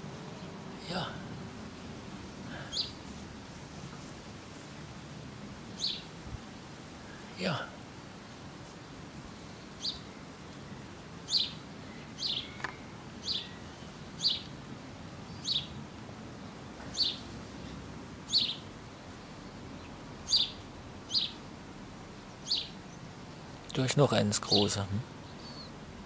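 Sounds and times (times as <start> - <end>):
small bird chirping: 2.6 - 3.1, 5.8 - 6.1, 9.8 - 10.3, 11.3 - 14.5, 15.3 - 15.8, 16.9 - 17.3, 18.3 - 21.4, 22.2 - 23.1, 25.2 - 25.8.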